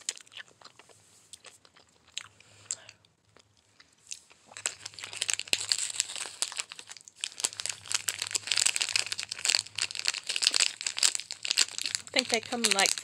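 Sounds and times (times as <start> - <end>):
plastic packet crinkling: 4.2 - 13.0.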